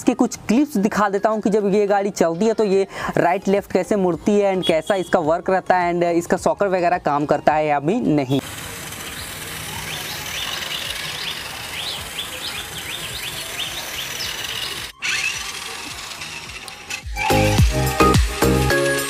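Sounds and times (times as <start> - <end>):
toy truck motor whining: 8.4 - 17.6
background music with a beat: 16.5 - 19.0.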